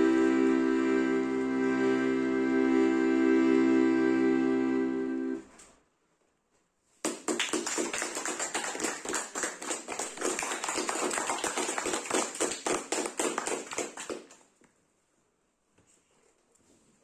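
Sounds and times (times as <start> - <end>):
audience applause: 7.1 - 14.4.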